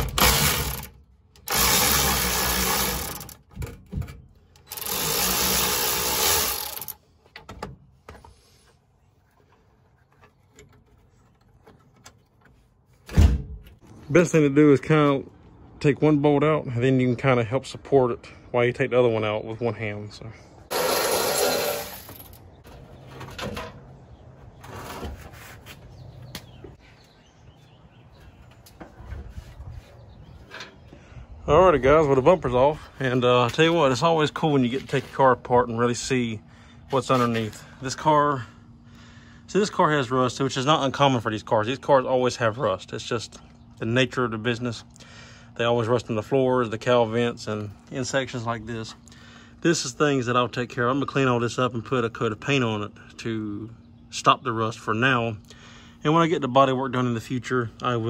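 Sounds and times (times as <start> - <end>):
power wrench running: 0.0 - 3.5, 4.6 - 7.0, 20.7 - 22.4.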